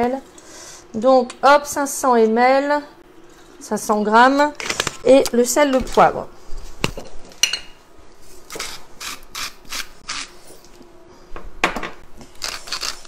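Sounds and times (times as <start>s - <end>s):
pepper mill grinding: 12.4s - 13.0s.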